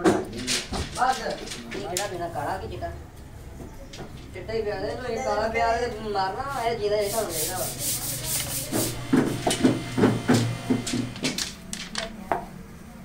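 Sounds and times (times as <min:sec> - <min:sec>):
hand rubbing wooden cue: 0:06.9 - 0:11.4.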